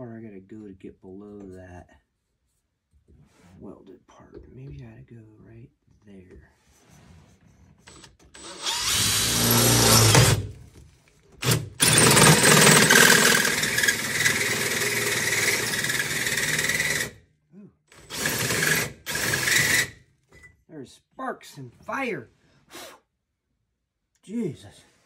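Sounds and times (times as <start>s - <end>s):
cordless drill boring into metal: 7.9s - 10.5s, 11.4s - 17.2s, 17.9s - 20.0s.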